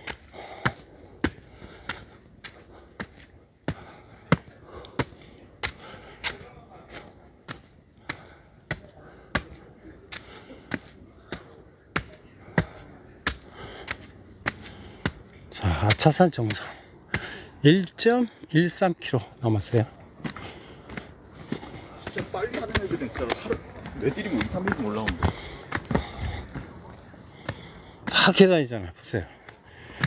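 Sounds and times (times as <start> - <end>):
footsteps on concrete steps: 0.0 - 30.0.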